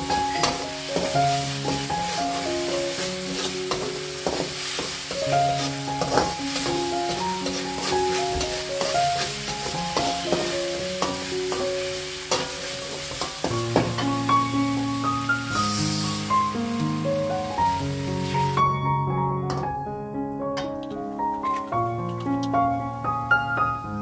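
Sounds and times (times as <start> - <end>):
paste sizzling in a wok: 0.0 - 18.7
metal spatula scraping pan: 2.9 - 11.6, 12.3 - 14.1.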